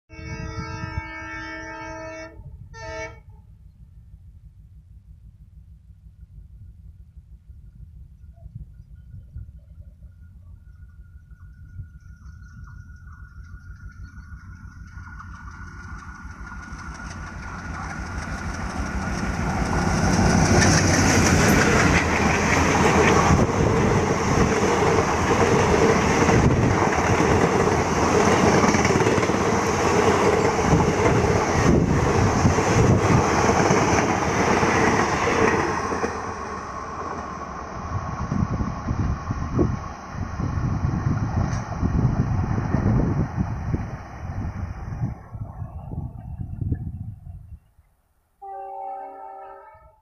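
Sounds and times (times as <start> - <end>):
diesel locomotive passing: 9.8 - 47.1
train wheels clattering on rails: 11.3 - 36.2.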